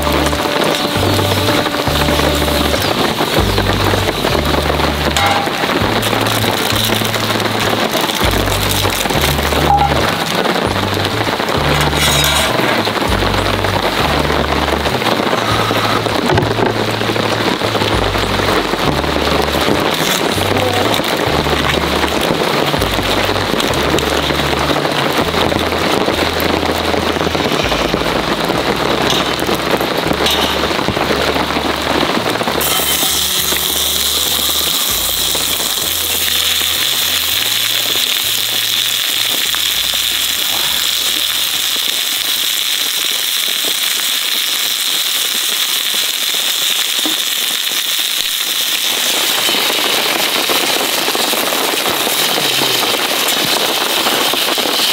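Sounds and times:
meat sizzling in frying pan: 0.0 - 14.9, 19.9 - 23.0, 32.2 - 54.9
rain pattering: 0.0 - 54.9
wood fire crackling: 0.0 - 54.9.

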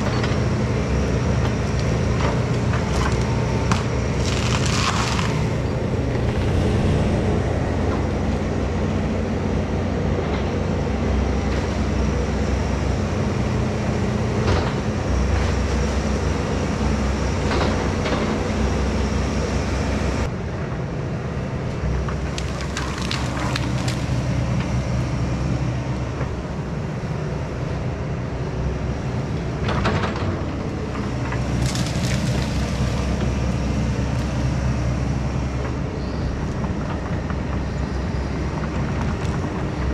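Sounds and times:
diesel engine under load: 0.0 - 39.9
wood cracking and splintering: 2.3 - 7.7, 22.2 - 24.4, 31.0 - 33.5.

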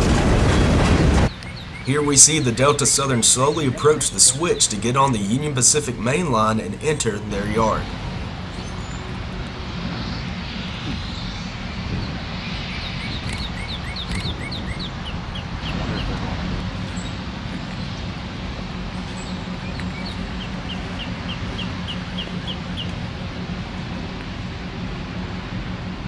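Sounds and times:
diesel locomotive engine rumbling: 0.0 - 26.0
songbird singing falling notes: 12.0 - 16.1.

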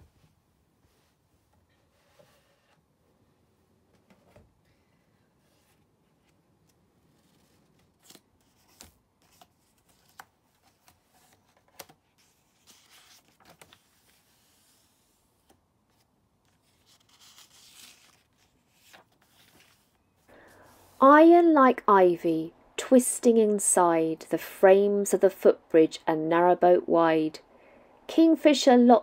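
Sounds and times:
pages turning: 5.6 - 21.0.

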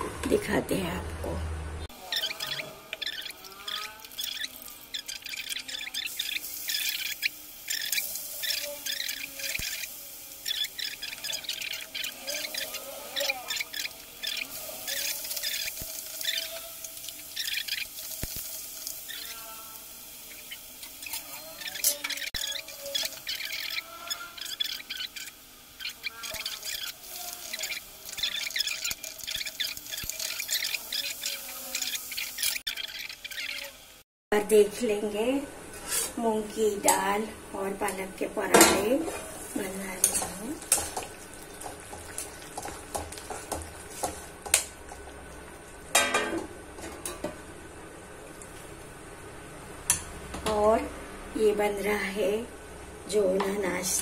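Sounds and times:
crackles of frying: 1.9 - 54.0
onion and tomato sizzling in oil: 1.9 - 54.0
metal squeaking on metal: 2.0 - 17.8, 20.3 - 33.7
spoon scraping a metal pan: 2.2 - 19.5, 20.3 - 32.8, 38.6 - 44.6.

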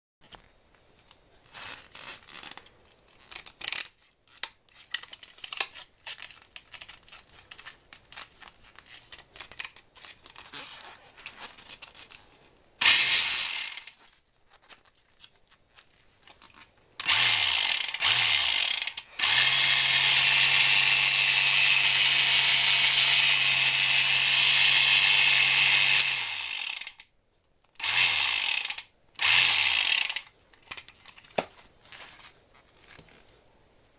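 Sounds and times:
reel parts clicking and rattling: 3.1 - 10.5, 27.8 - 32.2
electric fishing reel motor: 12.8 - 13.9, 17.0 - 27.0, 27.8 - 30.2.

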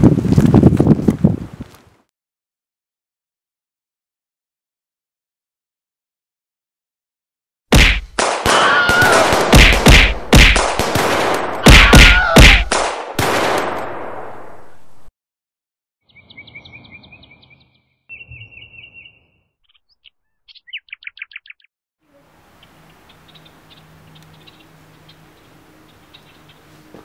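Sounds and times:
loud gunshots: 7.7 - 14.6
birds chirping and trilling: 16.0 - 21.7, 22.3 - 27.0.

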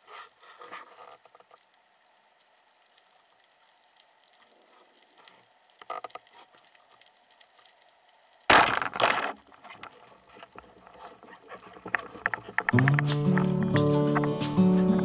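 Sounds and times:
speargun crack underwater: 8.4 - 9.5.

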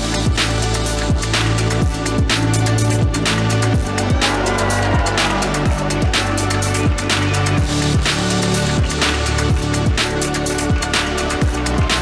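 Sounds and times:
background music with a beat: 0.0 - 12.0.

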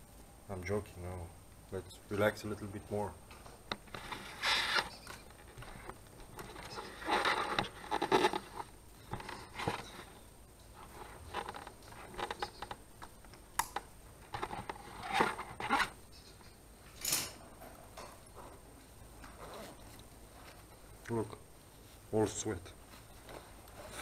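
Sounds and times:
rustling and scraping of gear: 3.4 - 13.3, 14.2 - 17.1, 18.8 - 21.0, 22.8 - 24.0.

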